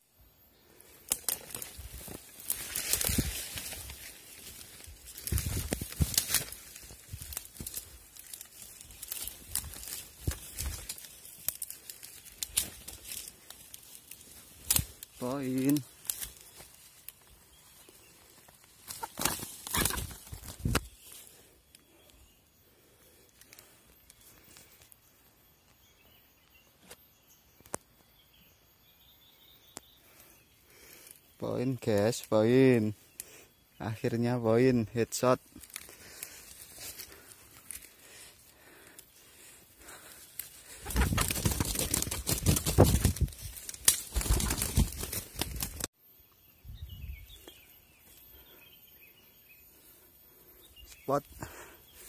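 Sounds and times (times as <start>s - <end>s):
faint forest background noise: 0.0s - 52.0s
rustling of dry leaves and brush: 0.5s - 26.1s, 30.0s - 45.9s
faint bird chirps: 14.9s - 41.2s, 46.0s - 52.0s.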